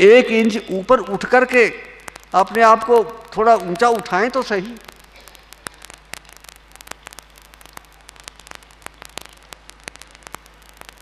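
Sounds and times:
crackling static clicks: 0.0 - 11.0
electrical mains hum: 0.0 - 11.0.

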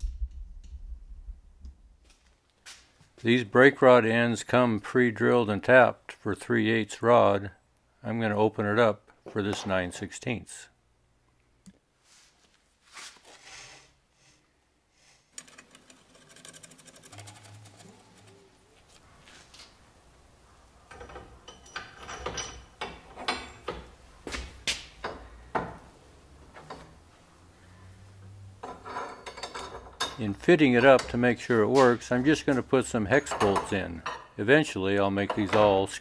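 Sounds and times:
metal parts clinking and knocking: 20.9 - 23.9, 28.6 - 31.2.

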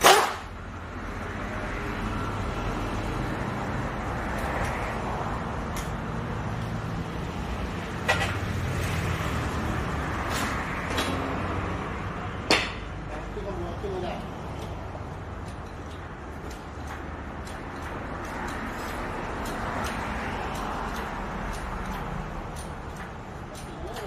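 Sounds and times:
metallic hand tool clicks: 15.5 - 24.0.

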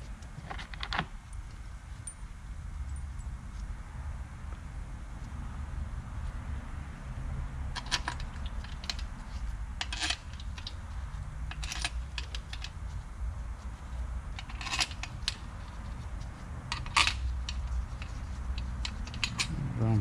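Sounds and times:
steady low hum: 8.3 - 20.0
metal bolts clinking: 9.8 - 10.8, 11.5 - 12.8, 14.4 - 15.4, 16.7 - 19.6.

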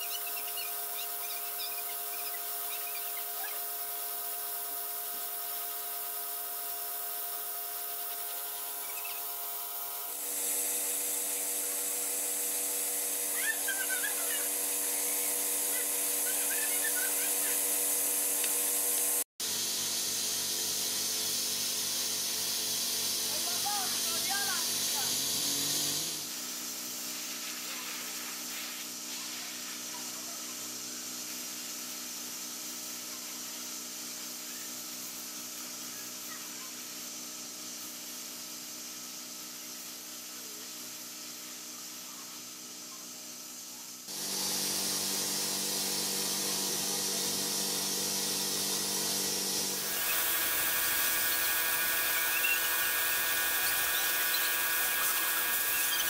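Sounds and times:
spray gun hissing: 10.1 - 19.3, 20.3 - 56.0
machine hum: 44.1 - 56.0.

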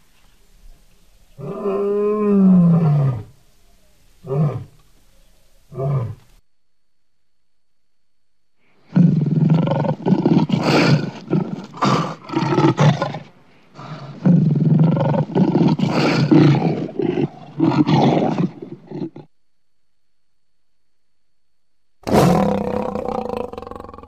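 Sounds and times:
lion roaring: 8.9 - 19.3, 22.0 - 24.0.

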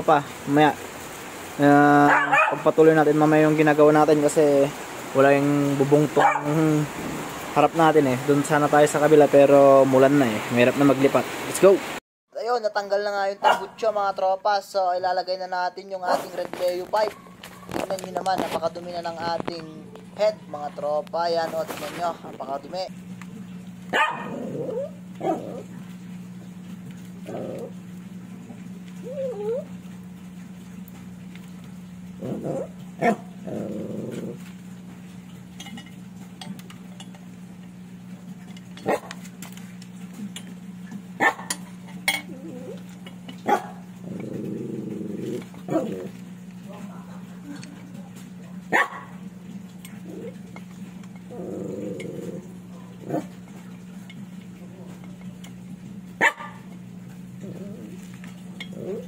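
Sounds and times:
dog barking: 2.0 - 2.7, 6.2 - 6.6, 13.4 - 13.8, 17.1 - 17.9, 23.9 - 25.7, 32.6 - 33.3, 38.8 - 39.1, 41.2 - 41.5, 43.4 - 43.9, 48.5 - 49.2, 56.2 - 56.7
steady low hum: 12.8 - 59.0
dog whining: 23.9 - 25.8, 28.9 - 29.8, 42.1 - 42.9, 57.4 - 58.1, 58.7 - 59.0
dog growling: 24.0 - 25.8, 27.2 - 27.8, 29.0 - 29.7, 32.2 - 34.5, 42.2 - 42.9, 43.5 - 46.2, 49.9 - 50.5, 51.3 - 53.4, 57.4 - 59.0.

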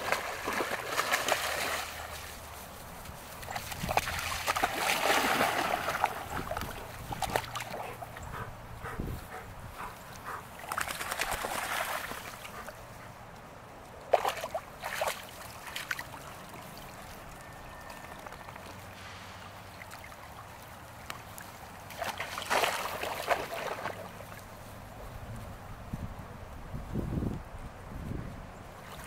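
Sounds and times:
dogs splashing in water: 0.0 - 9.0, 9.8 - 12.8, 14.1 - 24.5.

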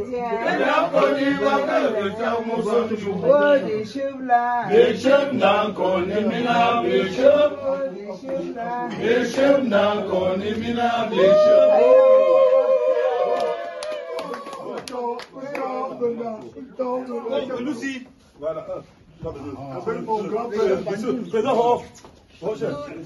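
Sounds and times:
voices chanting together: 0.1 - 13.0.

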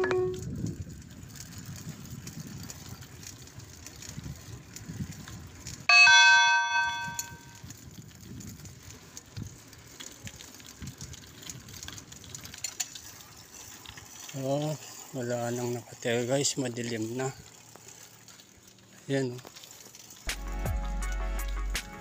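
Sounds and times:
wind and road rumble: 0.0 - 5.9, 6.5 - 15.4
bicycle bell ding: 5.9 - 7.6.

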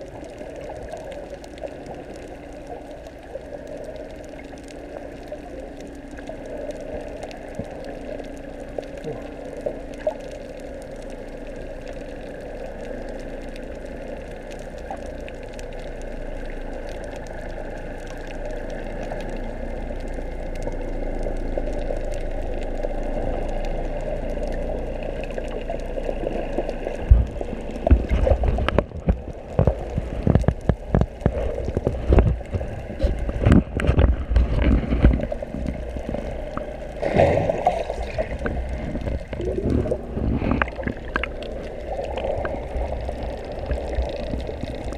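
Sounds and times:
underwater hum: 0.0 - 44.9
water sloshing and splashing: 0.0 - 44.9.

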